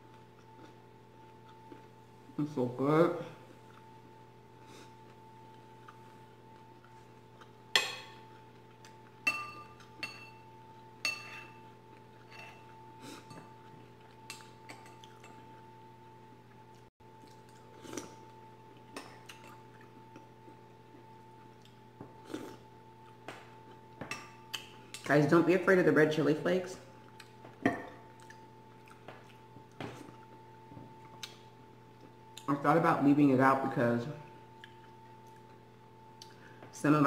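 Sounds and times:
faint steady hum: 0.0 - 37.0
metal spoon clinking on bowl: 9.2 - 10.4, 11.0 - 11.6.

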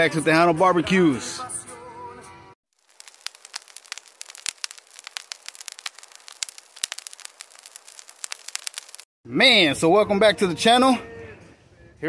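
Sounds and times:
fire crackling: 2.7 - 9.1.

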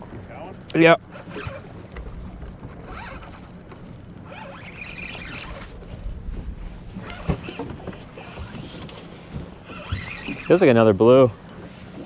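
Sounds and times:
spinning reel whirring and clicking: 0.0 - 6.2, 7.0 - 8.8, 9.6 - 11.7
low rumble: 1.6 - 4.2, 4.9 - 8.2.

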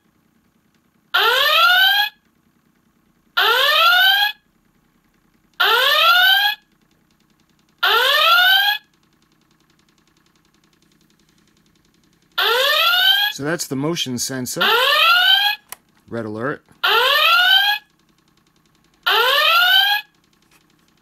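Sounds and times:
electronic alarm klaxon whoops: 1.1 - 2.2, 3.4 - 4.5, 5.6 - 6.7, 7.8 - 8.9, 12.4 - 13.4, 14.6 - 15.6, 16.8 - 17.9, 19.0 - 20.2.

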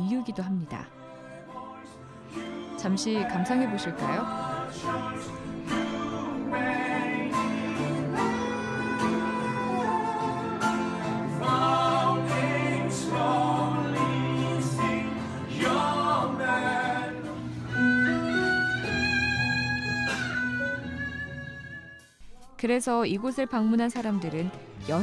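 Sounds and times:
person singing: 0.0 - 20.0
acoustic guitar: 0.7 - 22.1.

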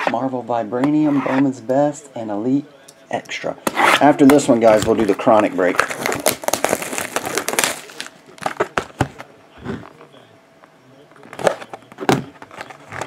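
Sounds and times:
utility knife cutting plastic wrap: 3.7 - 8.8
plastic wrap crinkling: 4.5 - 9.0.

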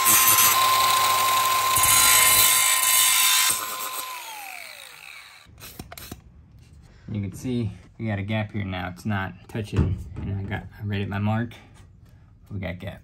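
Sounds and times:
angle grinder cutting metal: 0.0 - 5.5
grinder wheel spinning down: 0.0 - 5.5.

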